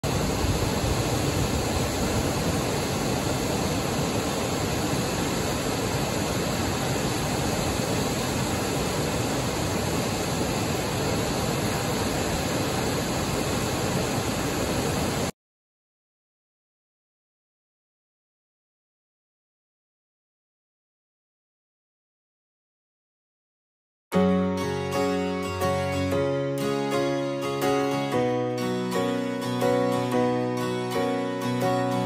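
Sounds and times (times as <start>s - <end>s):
waterfall rushing: 0.0s - 15.3s.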